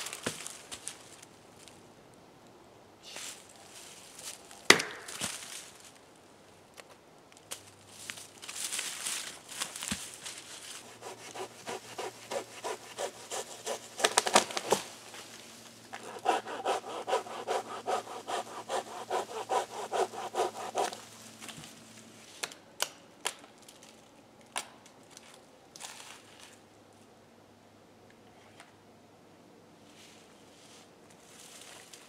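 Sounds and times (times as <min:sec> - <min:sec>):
rapid strokes on wood: 0:10.8 - 0:14.8, 0:16.0 - 0:21.1.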